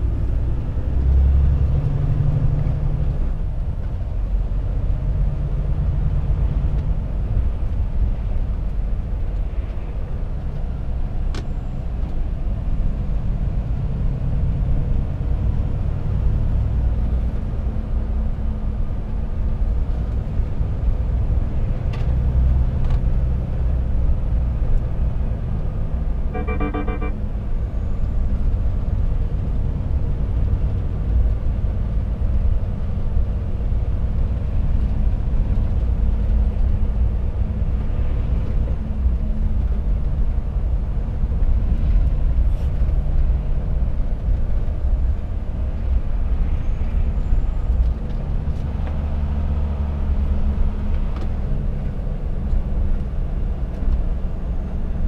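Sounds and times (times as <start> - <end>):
truck engine and road rumble: 0.0 - 55.0
pulsing electronic beep: 26.4 - 27.2.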